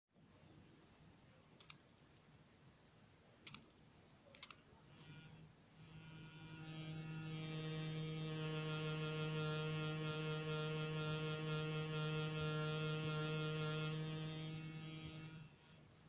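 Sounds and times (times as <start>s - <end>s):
sharp clicks: 1.6s - 1.8s, 3.4s - 3.7s, 4.3s - 5.1s
electric motor hum: 4.9s - 16.0s.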